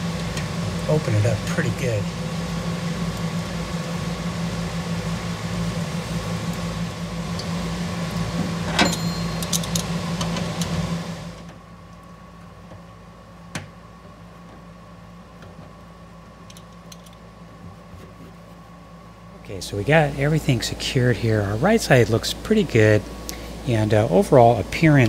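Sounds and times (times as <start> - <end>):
machine hum with pulsing beat: 0.0 - 25.0.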